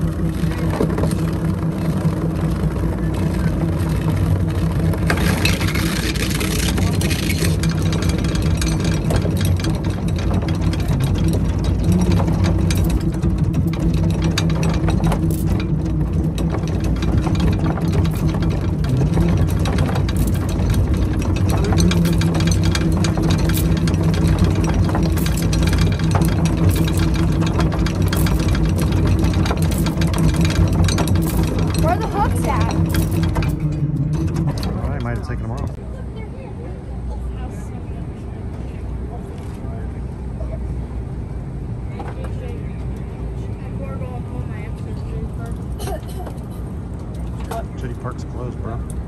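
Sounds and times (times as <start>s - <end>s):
boat engine idling: 0.0s - 49.0s
anchor chain clinking: 0.1s - 35.8s.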